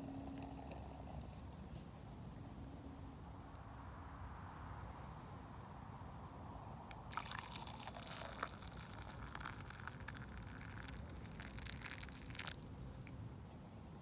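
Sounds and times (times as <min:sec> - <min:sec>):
coffee pouring into a plastic cup: 0:00.0 - 0:01.5, 0:06.9 - 0:13.2.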